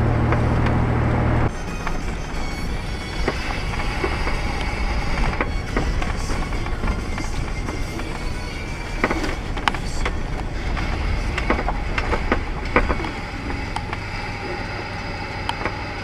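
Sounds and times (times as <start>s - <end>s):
car road noise rumble: 0.0s - 16.0s
irregular clicks and knocks: 3.2s - 14.1s.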